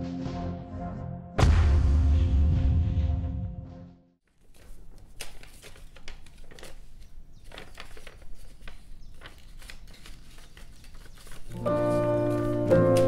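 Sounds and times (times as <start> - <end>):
paper rustling and crinkling: 4.3 - 13.0.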